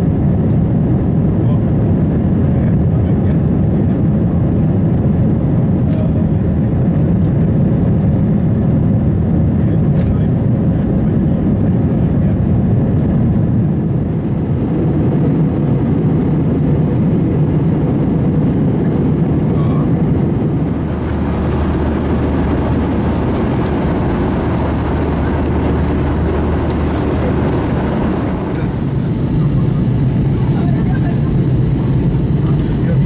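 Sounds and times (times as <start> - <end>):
aircraft cabin roar: 0.0 - 33.0
steady low hum: 0.0 - 33.0.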